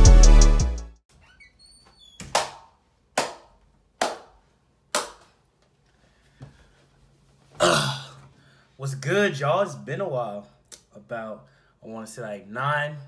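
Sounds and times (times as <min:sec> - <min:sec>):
man clapping hands: 0:02.3 - 0:05.4.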